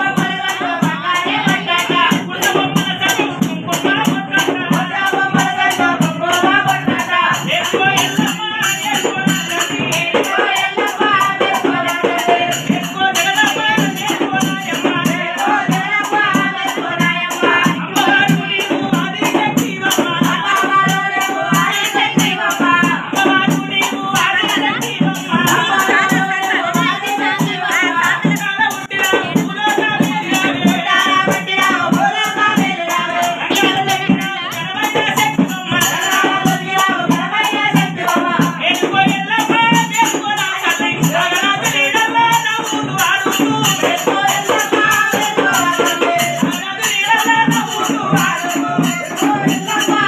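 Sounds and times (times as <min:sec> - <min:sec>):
drums: 0:00.0 - 0:50.0
man singing a chant: 0:00.0 - 0:50.0
metallic rattle percussion: 0:00.0 - 0:50.0.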